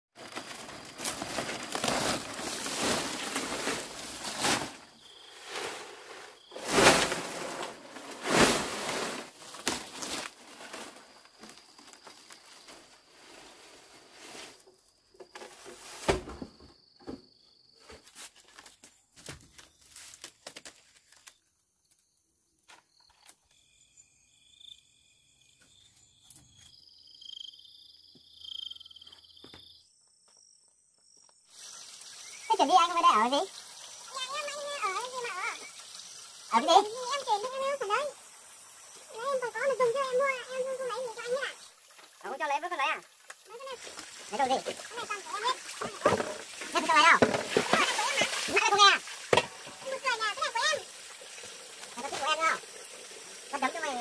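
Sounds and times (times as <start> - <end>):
insects chirping: 0.2 - 54.0
loud rustling: 5.4 - 11.2.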